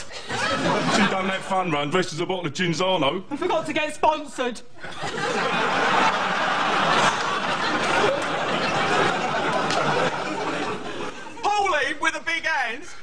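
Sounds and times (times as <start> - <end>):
people laughing hysterically: 0.1 - 1.5, 4.8 - 11.5.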